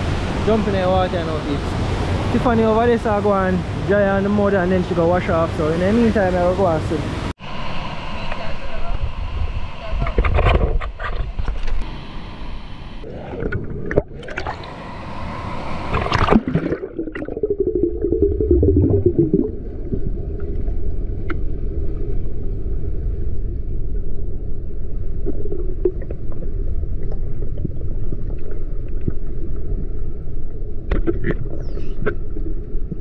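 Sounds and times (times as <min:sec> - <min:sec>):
muffled underwater gurgling: 0:13.0 - 0:33.0
river water splashing: 0:13.9 - 0:19.6.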